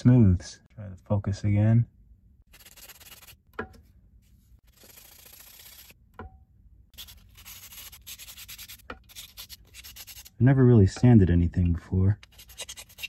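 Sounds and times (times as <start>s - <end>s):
sandpaper scratching: 2.5s - 3.4s, 4.6s - 6.0s, 6.9s - 10.4s, 12.2s - 13.0s.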